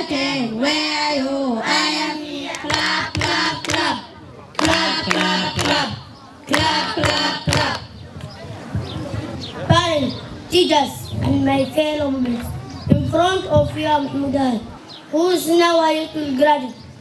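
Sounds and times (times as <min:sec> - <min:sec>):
girls singing into a microphone: 0:00.0 - 0:07.9
hands clapping: 0:02.5 - 0:08.3.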